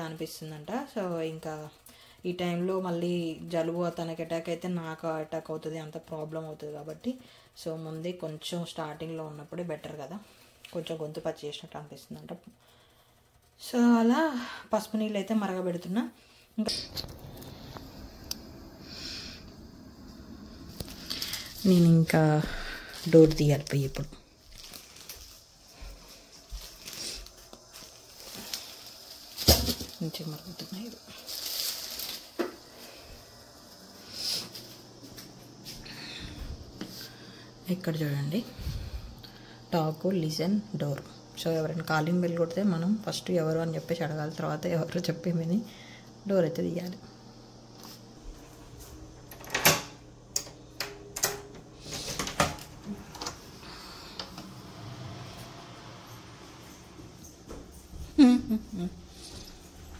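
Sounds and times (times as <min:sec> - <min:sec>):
soft footsteps: 0:20.0 - 0:29.3, 0:34.4 - 0:37.1.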